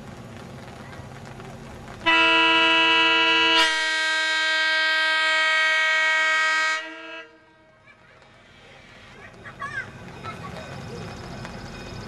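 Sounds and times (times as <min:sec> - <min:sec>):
locomotive air horn chord: 0:02.1 - 0:07.6.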